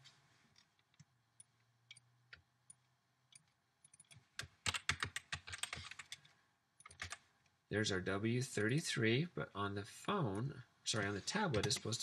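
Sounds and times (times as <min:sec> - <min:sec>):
computer keyboard typing: 0:03.3 - 0:07.2.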